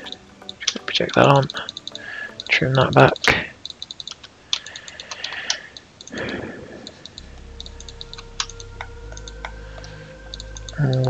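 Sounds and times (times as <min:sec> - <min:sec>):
faint low hum: 0:06.2 - 0:11.0.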